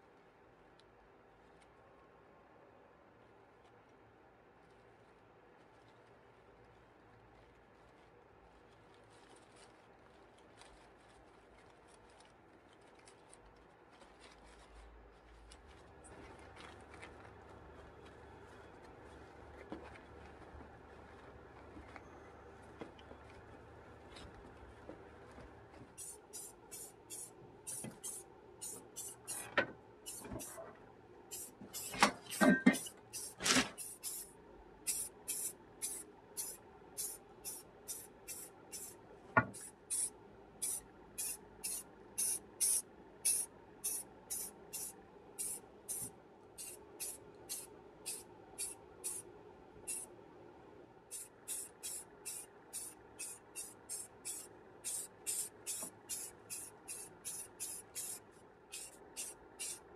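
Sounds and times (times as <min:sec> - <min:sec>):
spray can hissing: 0:26.0 - 0:30.6, 0:31.3 - 0:34.3, 0:34.9 - 0:38.9, 0:39.5 - 0:49.2, 0:49.9 - 0:50.1, 0:51.1 - 0:59.8.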